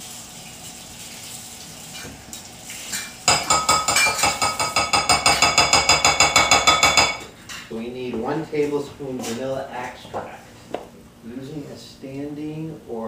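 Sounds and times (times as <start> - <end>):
utensil clinking in glass bowl: 2.9 - 7.2.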